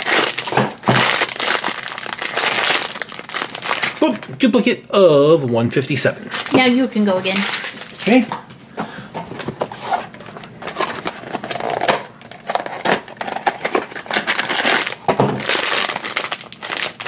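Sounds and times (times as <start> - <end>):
foil bag crinkling: 0.0 - 4.2, 6.3 - 8.2, 10.6 - 17.0.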